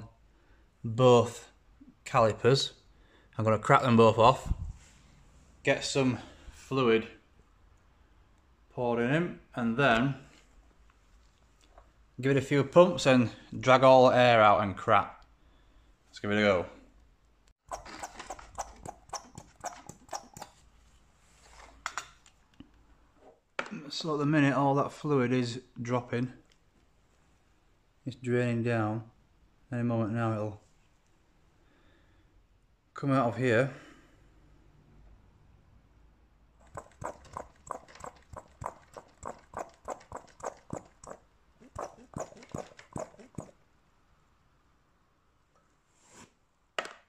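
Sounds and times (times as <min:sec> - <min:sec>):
hand vacuum pump clicking: 0:17.7 - 0:20.6, 0:36.6 - 0:43.5.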